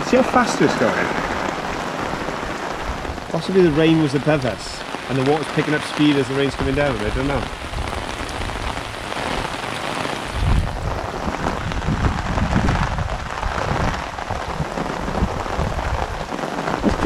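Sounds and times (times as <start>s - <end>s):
low rumbles: 0.0s - 17.0s
rain on water: 0.0s - 17.0s.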